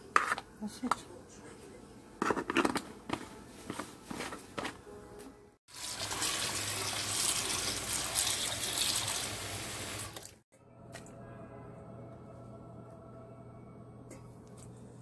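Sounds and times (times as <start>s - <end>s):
water running: 5.7s - 10.4s.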